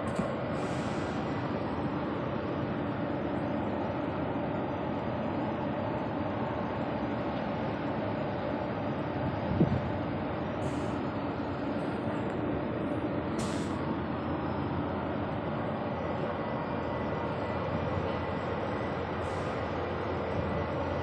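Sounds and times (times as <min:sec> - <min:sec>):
short hisses: 0:00.6 - 0:01.2, 0:13.4 - 0:13.8.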